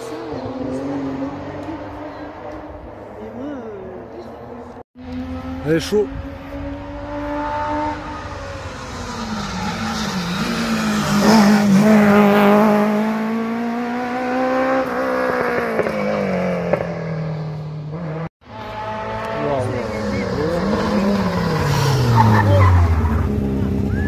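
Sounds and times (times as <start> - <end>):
rally car engine shifting gears: 5.0 - 24.0.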